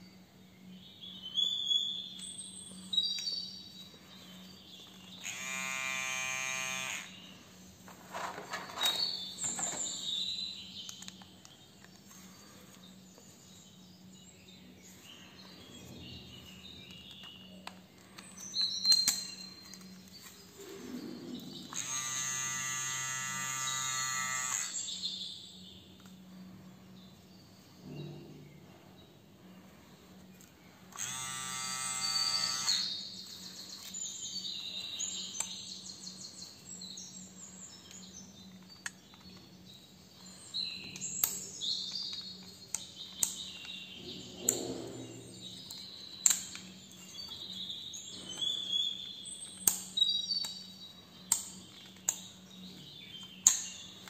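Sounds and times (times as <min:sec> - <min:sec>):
hair clipper buzzing: 0:05.1 - 0:07.3, 0:21.6 - 0:24.9, 0:30.9 - 0:33.0.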